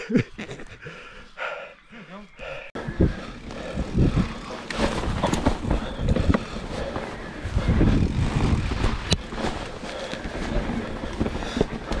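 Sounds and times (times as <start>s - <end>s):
bike tyres rumbling on trail: 2.8s - 12.0s
bike knocks and rattles: 3.2s - 12.0s.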